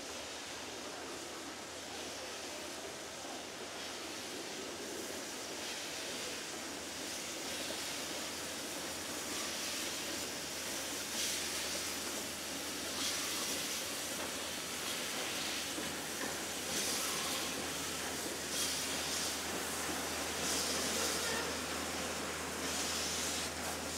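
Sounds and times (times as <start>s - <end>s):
steady hiss of steam: 0.0s - 23.9s
steam locomotive passing: 0.0s - 23.9s.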